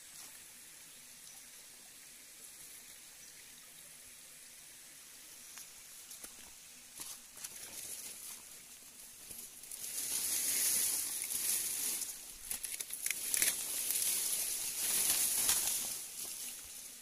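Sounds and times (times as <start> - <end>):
leaves and stems rustling: 5.5 - 17.0.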